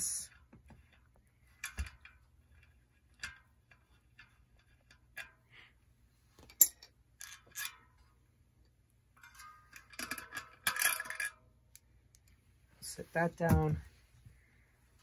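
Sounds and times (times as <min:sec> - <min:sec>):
metal clicks and clinks: 0:06.5 - 0:07.8.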